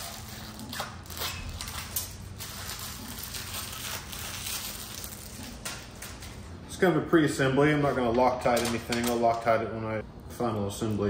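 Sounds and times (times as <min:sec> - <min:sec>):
plastic film crackling: 0:00.0 - 0:06.4.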